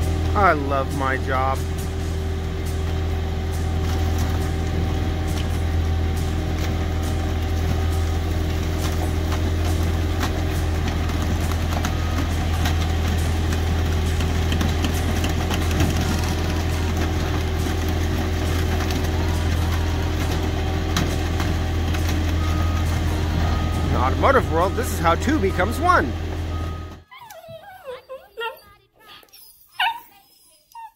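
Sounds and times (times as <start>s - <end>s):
car crusher engine humming: 0.0s - 27.1s
cars cracking and popping: 3.4s - 27.0s.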